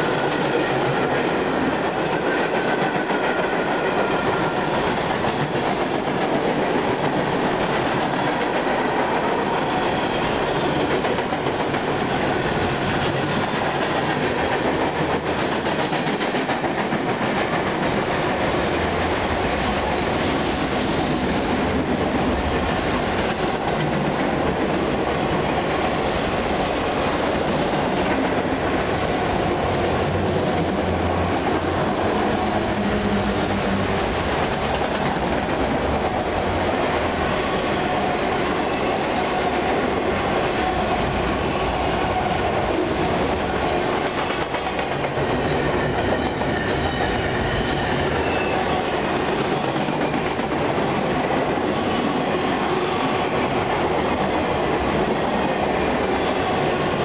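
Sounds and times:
freight train rattling past: 0:00.0 - 0:57.0.

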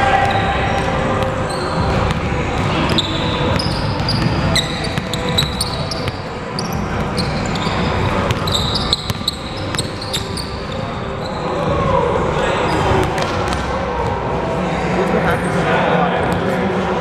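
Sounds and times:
sneakers squeaking: 0:00.0 - 0:11.9.

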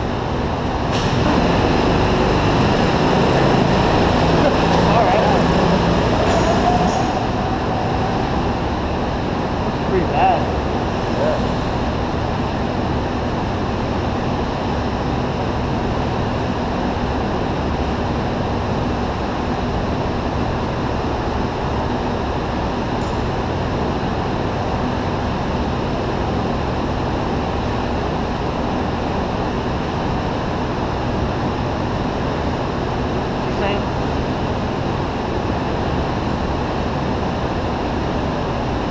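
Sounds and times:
go-kart engine rumbling: 0:00.6 - 0:11.8.

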